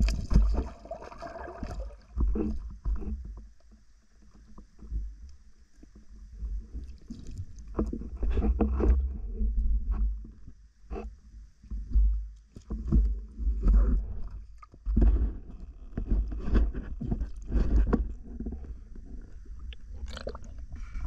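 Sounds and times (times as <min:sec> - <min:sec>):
knocks of moving water: 0:00.0 - 0:03.6
muffled underwater rumbling: 0:00.0 - 0:03.6, 0:11.8 - 0:21.0.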